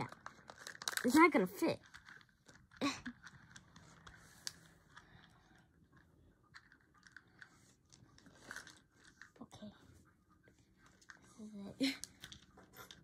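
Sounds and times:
plastic beads clicking: 0:00.0 - 0:04.6.

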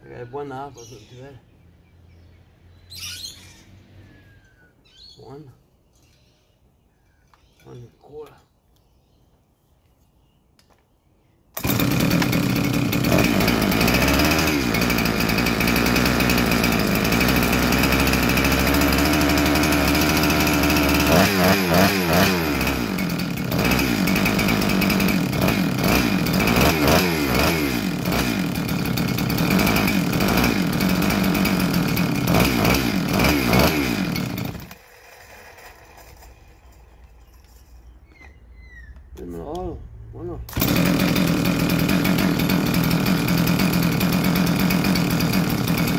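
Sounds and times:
chainsaw running and revving: 0:11.6 - 0:36.6, 0:40.5 - 0:45.9.

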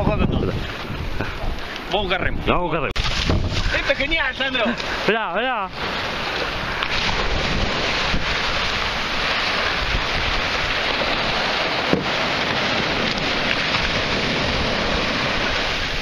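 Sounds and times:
wind on microphone: 0:00.0 - 0:04.1, 0:05.8 - 0:16.0
small waves breaking: 0:03.0 - 0:16.0.

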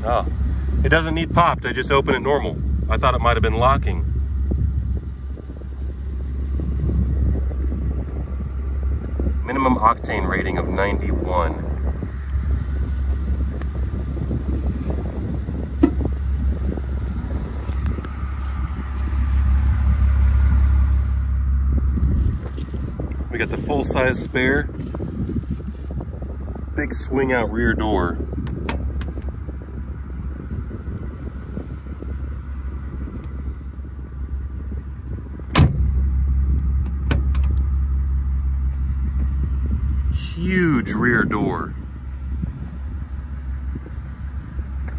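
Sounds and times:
car engine idling: 0:00.0 - 0:44.9
low rumble: 0:00.0 - 0:44.9
car door slamming shut: 0:15.8 - 0:16.1, 0:35.5 - 0:36.0, 0:36.9 - 0:37.6.

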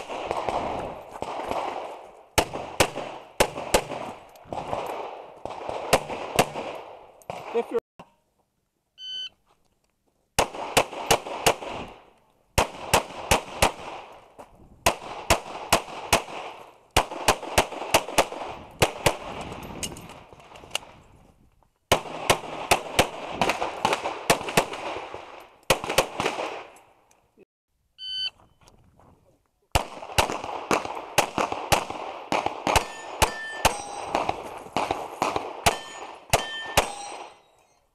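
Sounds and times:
pistol shots with echo: 0:00.0 - 0:07.8, 0:10.4 - 0:12.0, 0:12.6 - 0:14.1, 0:14.8 - 0:19.4, 0:21.9 - 0:26.7, 0:29.8 - 0:37.5
shot timer beep: 0:09.0 - 0:09.3, 0:28.0 - 0:28.4.

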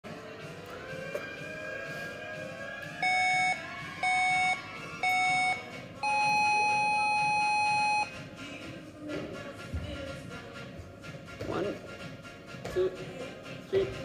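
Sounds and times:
long higher beep: 0:03.0 - 0:08.1
short timer beeps: 0:03.0 - 0:08.1.

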